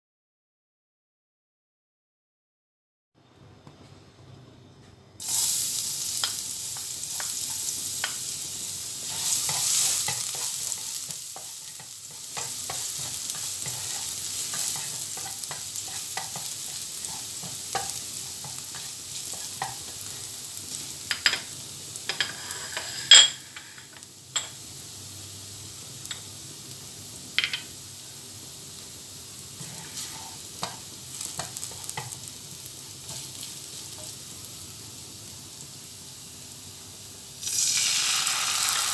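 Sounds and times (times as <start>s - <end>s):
garlic sizzling in oil: 5.2s - 38.9s
spatula scraping pan: 9.0s - 19.9s, 22.1s - 23.9s, 29.6s - 30.8s.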